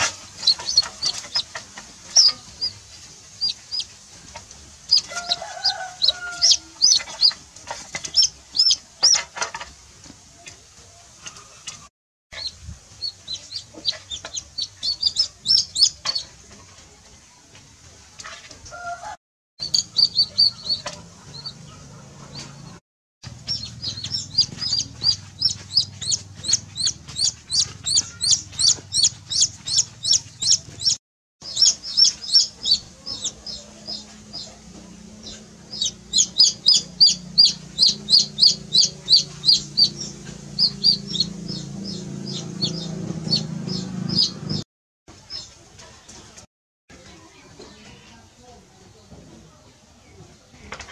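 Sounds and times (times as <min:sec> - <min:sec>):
chick peeping loudly: 0:00.0 - 0:09.5, 0:11.3 - 0:16.3, 0:19.6 - 0:44.6.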